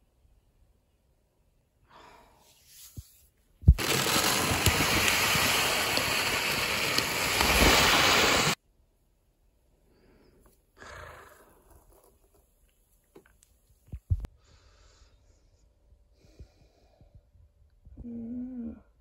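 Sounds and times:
litter pellets pouring into tray: 0:03.8 - 0:08.5.

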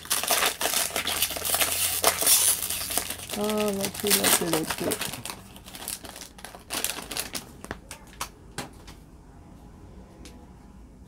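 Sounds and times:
foil wrapper crinkling: 0:00.0 - 0:08.2.

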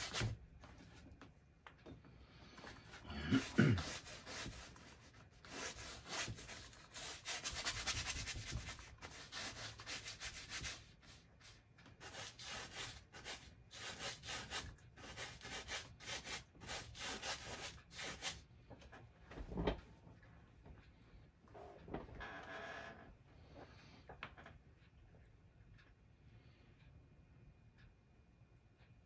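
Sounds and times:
brush scrubbing paint on canvas: 0:00.0 - 0:01.0, 0:02.6 - 0:18.4.

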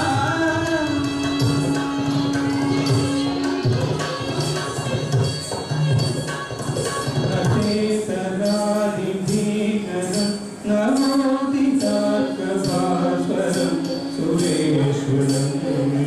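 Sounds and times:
percussion: 0:00.0 - 0:16.0
person singing sliding notes: 0:07.4 - 0:16.0.

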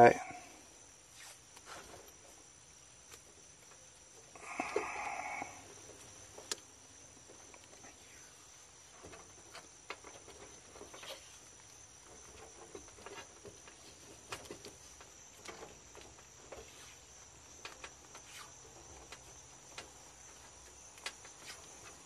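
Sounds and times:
faint high insect buzz: 0:00.0 - 0:22.0.

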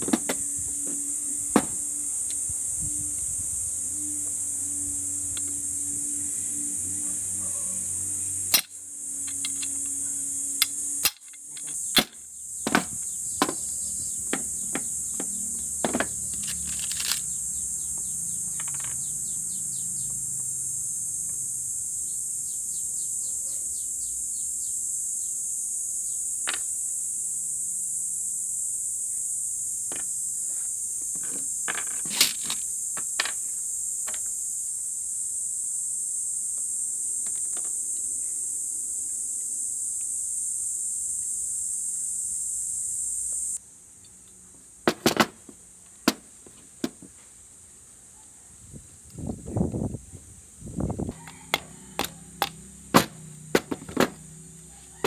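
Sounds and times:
high-pitched insect chorus: 0:00.0 - 0:55.0
parts knocking and clicking: 0:08.5 - 0:10.0, 0:10.6 - 0:17.3, 0:18.4 - 0:19.1, 0:44.0 - 0:47.2, 0:51.2 - 0:54.2.

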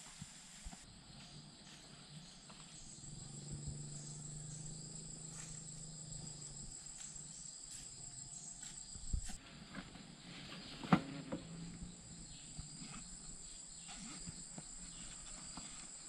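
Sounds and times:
pulsing insect sound: 0:00.1 - 0:09.4
insects trilling: 0:00.1 - 0:16.0
faint low hum: 0:00.6 - 0:15.8.

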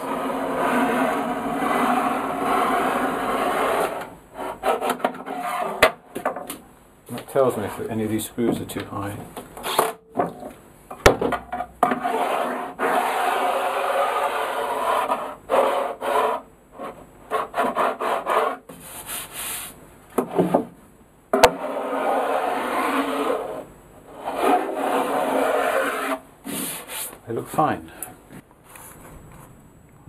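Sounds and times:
wood scraping on wood: 0:00.0 - 0:05.9, 0:11.8 - 0:20.7, 0:21.4 - 0:27.2.

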